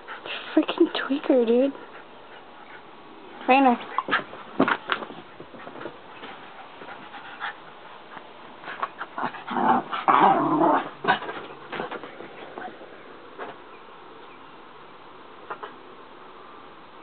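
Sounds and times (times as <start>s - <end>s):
small dog growling: 9.0s - 11.5s.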